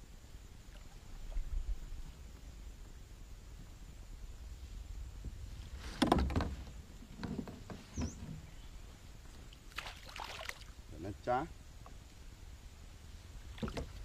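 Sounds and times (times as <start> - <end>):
knocks against boat: 5.9 - 8.5, 13.6 - 14.0.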